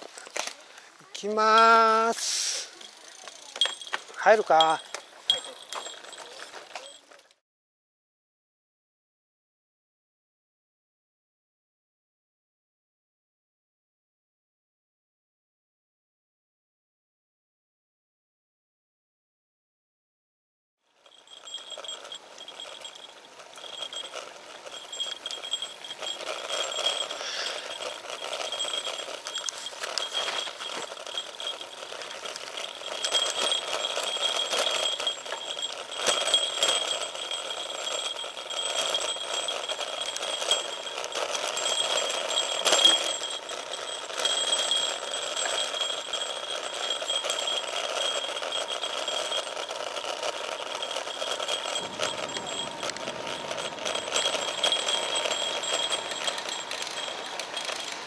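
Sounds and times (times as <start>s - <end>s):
bike tyre road noise: 21.1s - 58.0s.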